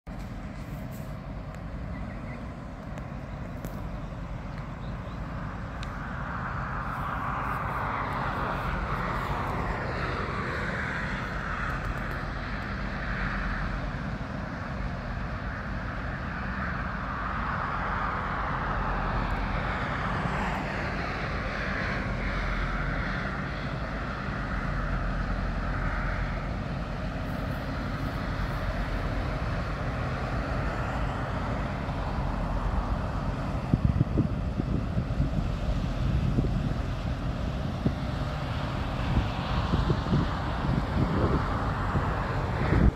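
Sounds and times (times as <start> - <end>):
ship engine droning: 0.1 - 42.9.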